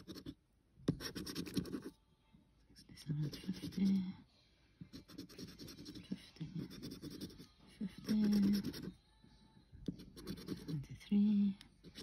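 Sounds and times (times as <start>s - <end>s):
scratchcard scraping: 0.0s - 1.9s, 4.9s - 9.0s, 9.9s - 10.8s.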